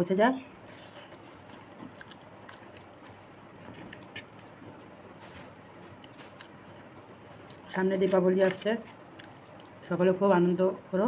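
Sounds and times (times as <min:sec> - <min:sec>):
person chewing: 0:00.7 - 0:07.8, 0:08.9 - 0:09.9.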